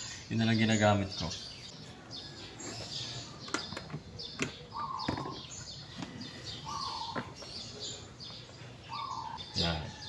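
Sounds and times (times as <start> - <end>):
birds chirping: 0.0 - 10.0
buzzy bird call: 4.7 - 8.1.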